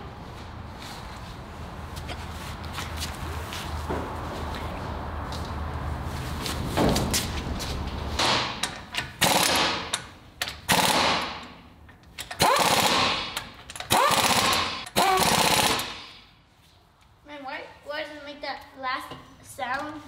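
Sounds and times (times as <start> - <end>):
impact wrench hammering: 8.2 - 16.3.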